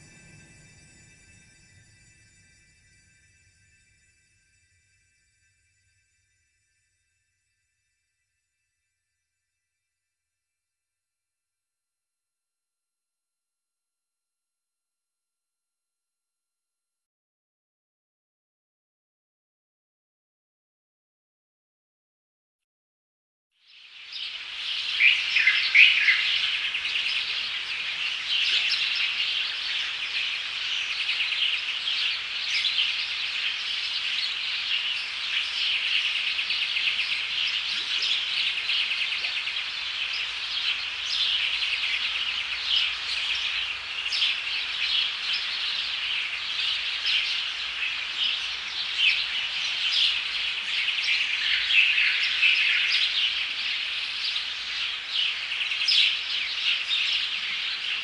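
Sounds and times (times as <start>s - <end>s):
many birds chirping: 24.0s - 58.0s.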